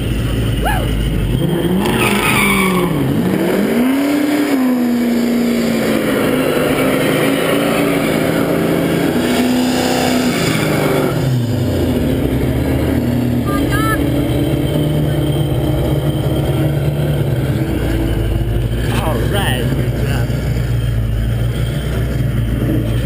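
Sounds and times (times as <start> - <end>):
tyres spinning and squealing: 0.0 - 3.7
car engine revving: 0.0 - 23.0.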